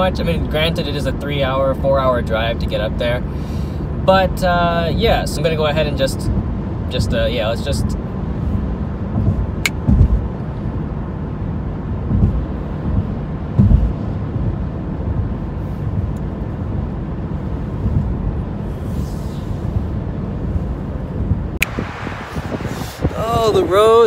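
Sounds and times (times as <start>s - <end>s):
car interior road noise: 0.0s - 24.0s
dull thumps over bumps: 9.1s - 10.4s, 12.0s - 14.0s.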